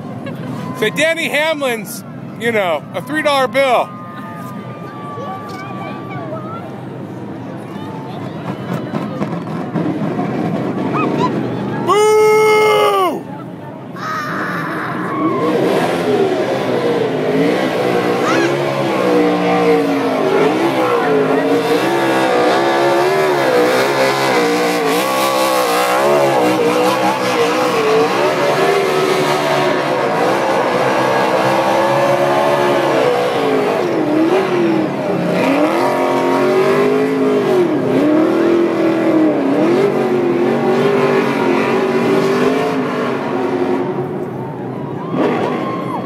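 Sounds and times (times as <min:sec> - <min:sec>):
car engine revving hard: 0:15.4 - 0:44.0.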